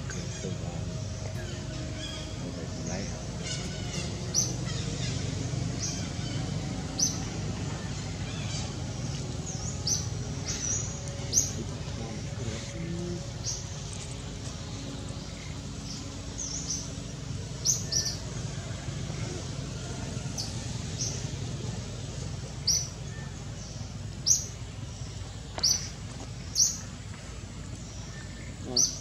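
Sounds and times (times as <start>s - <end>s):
low outdoor rumble: 0.0s - 29.0s.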